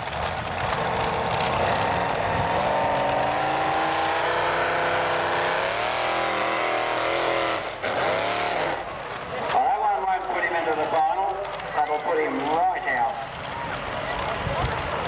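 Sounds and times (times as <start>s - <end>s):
tractor engine at high revs: 0.0s - 9.3s.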